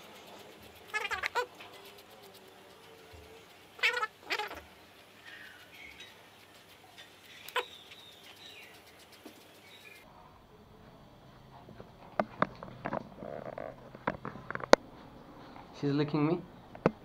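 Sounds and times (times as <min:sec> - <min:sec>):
puppy yelping: 0:00.8 - 0:01.5, 0:03.8 - 0:04.7, 0:07.5 - 0:08.7.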